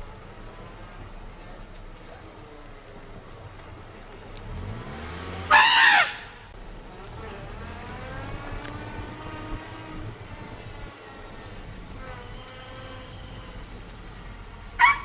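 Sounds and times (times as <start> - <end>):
vehicle engine hum: 0.0 - 15.0
elephant trumpeting: 5.4 - 6.4, 14.8 - 15.0.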